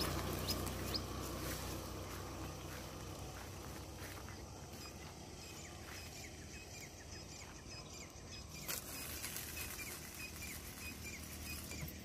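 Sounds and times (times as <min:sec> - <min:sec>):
low outdoor rumble: 0:00.0 - 0:12.0
small birds chirping: 0:00.0 - 0:12.0.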